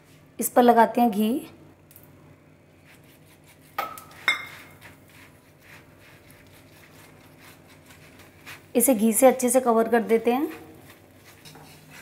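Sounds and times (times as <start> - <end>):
brush dabbing: 2.8 - 12.0
steel bowl clinking: 3.8 - 4.8.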